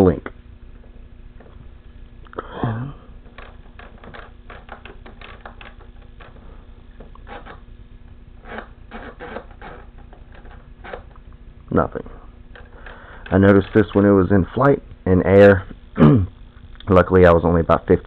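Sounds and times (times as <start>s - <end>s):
short falling vocal sound: 2.3s - 3.1s.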